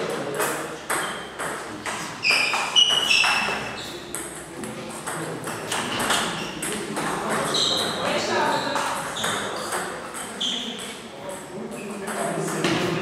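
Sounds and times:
high-pitched squeaks: 2.2 - 4.0, 7.4 - 8.0.

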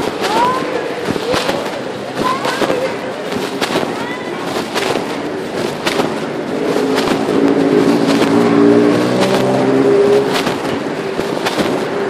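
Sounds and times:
fabric rubbing on microphone: 0.0 - 12.0
vehicle engine hum: 0.0 - 12.0.

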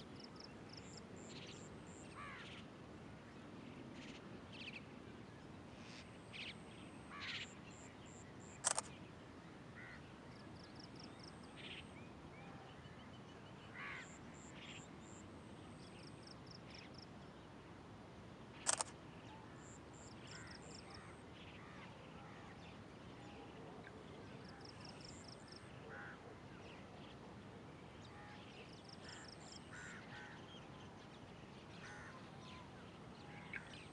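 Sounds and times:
loud short bird calls: 7.1 - 7.6, 18.6 - 21.9, 29.0 - 30.5.

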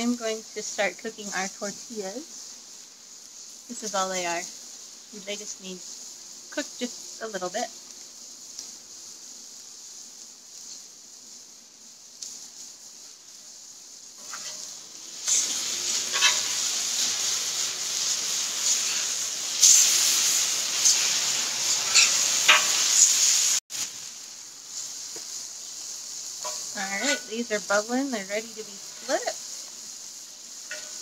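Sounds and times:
chicken sizzling on griddle: 0.0 - 31.0
metal spatula scraping griddle: 14.2 - 23.4, 26.4 - 27.7, 30.6 - 31.0.

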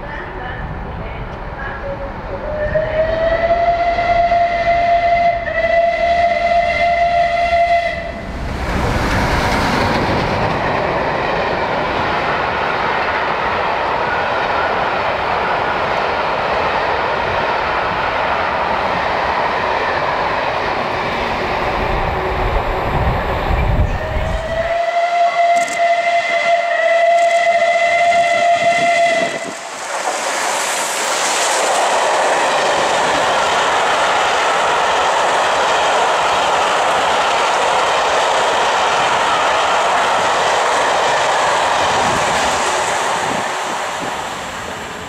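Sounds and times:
steam locomotive passing: 0.0 - 45.0
train wheels on rails: 0.6 - 45.0
steam whistle blast: 2.4 - 8.2, 24.0 - 29.7.

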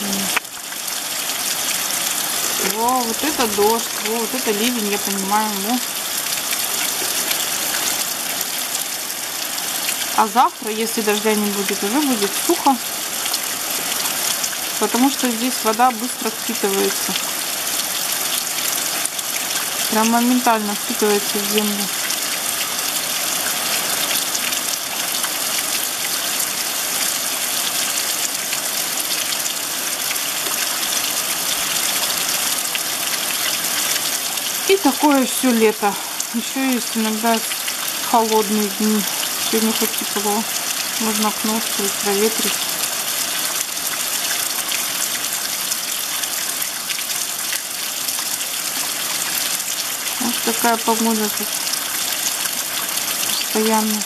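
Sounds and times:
heavy rain hissing: 0.0 - 10.4
heavy rain pouring: 0.0 - 54.0.

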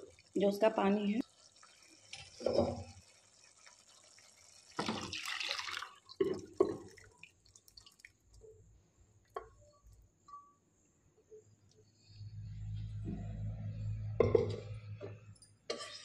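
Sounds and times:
dripping: 1.2 - 8.6
liquid splashing into pan: 1.4 - 8.2.

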